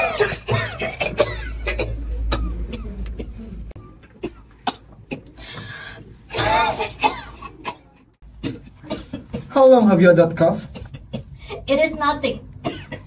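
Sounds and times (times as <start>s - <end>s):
person coughing: 0.0s - 3.6s, 6.3s - 9.6s, 12.6s - 13.0s.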